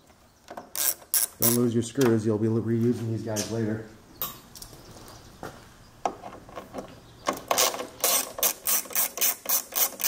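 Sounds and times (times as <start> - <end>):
hand ratchet clicking: 0.8 - 1.6, 7.5 - 10.0.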